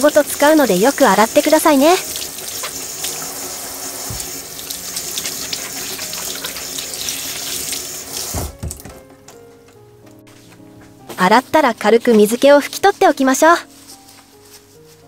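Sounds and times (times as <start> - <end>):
faucet water running onto hands: 0.0 - 8.8.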